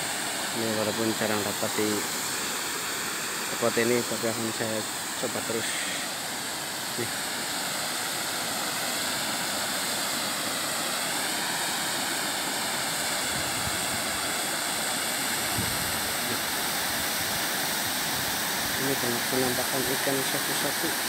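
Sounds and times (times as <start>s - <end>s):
water rushing over a weir: 0.0s - 21.0s.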